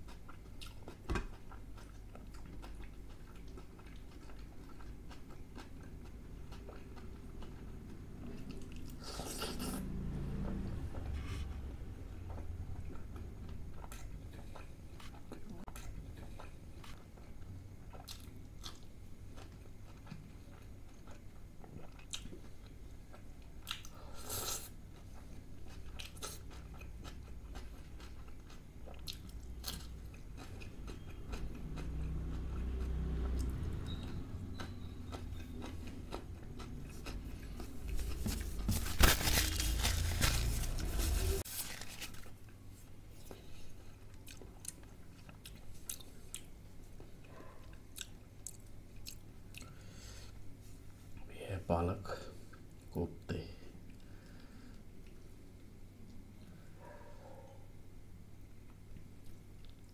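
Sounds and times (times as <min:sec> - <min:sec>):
crunchy chewing: 0:00.0 - 0:09.8, 0:12.3 - 0:50.3.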